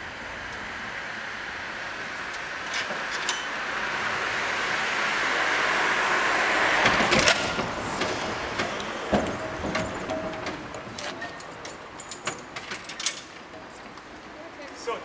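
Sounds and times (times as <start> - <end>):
tram running noise: 0.0 - 15.0.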